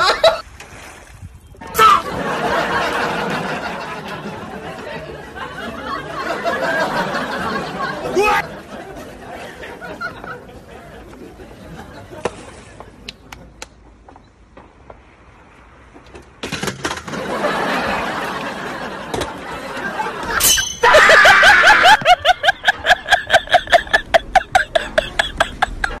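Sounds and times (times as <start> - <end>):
loud laughter: 0.0 - 0.4, 1.6 - 12.2, 17.1 - 26.0.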